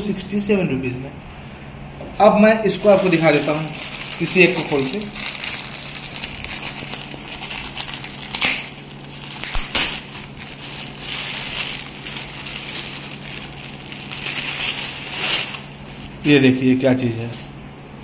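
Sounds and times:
plastic wrapping crinkling: 2.7 - 16.8.

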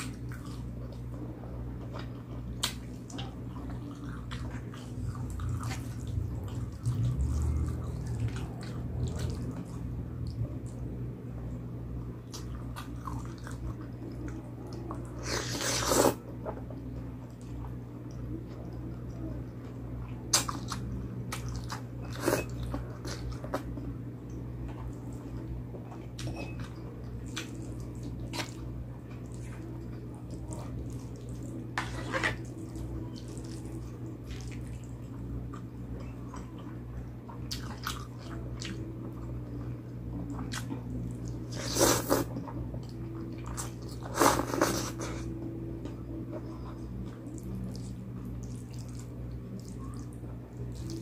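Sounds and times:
low hum: 0.0 - 15.2.

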